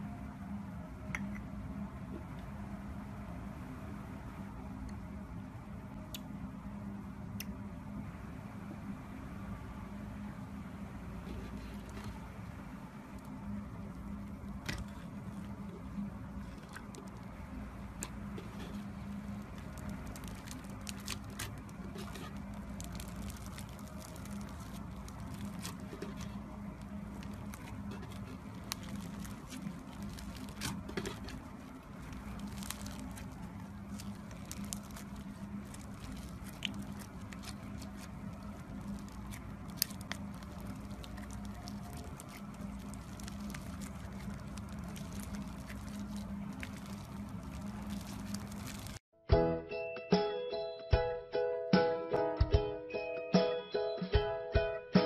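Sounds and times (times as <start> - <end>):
steady low hum: 0.0 - 49.0
slime squishing: 11.1 - 49.0
foam beads crackling: 13.1 - 49.0.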